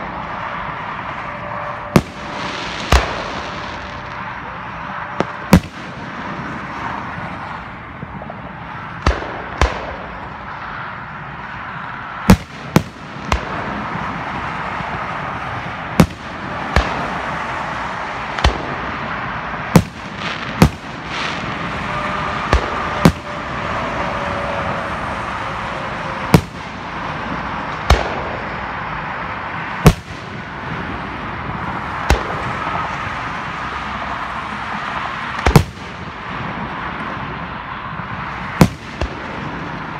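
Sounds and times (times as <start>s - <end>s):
steady background noise: 0.0s - 39.9s
firework shells booming: 1.3s - 4.4s, 5.1s - 7.2s, 8.0s - 10.6s, 12.2s - 33.0s, 35.3s - 37.4s, 38.1s - 39.9s.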